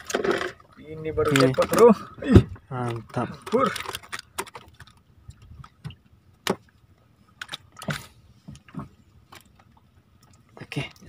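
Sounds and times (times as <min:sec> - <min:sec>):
knocks and clicks on wooden boat: 0:01.2 - 0:06.7.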